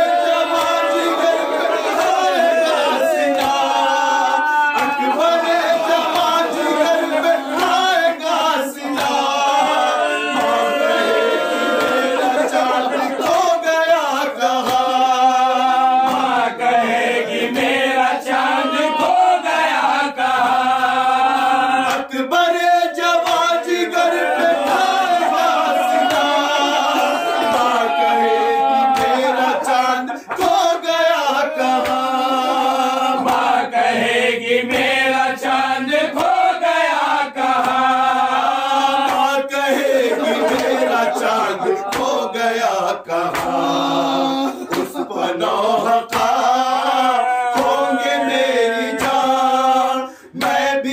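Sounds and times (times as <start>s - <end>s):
men chanting in unison: 0.0s - 50.9s
hands slapping chests: 0.3s - 1.2s, 1.8s - 6.9s, 7.5s - 9.7s, 11.7s - 12.2s, 13.1s - 13.6s, 14.5s - 15.1s, 16.0s - 16.4s, 20.8s - 22.2s, 24.5s - 28.0s, 28.6s - 33.6s, 34.7s - 36.4s, 37.4s - 38.0s, 39.0s - 39.4s, 40.3s - 42.3s, 43.2s - 43.7s, 44.6s - 45.1s, 46.1s - 46.6s, 47.2s - 48.3s, 49.0s - 49.4s, 50.4s - 50.7s.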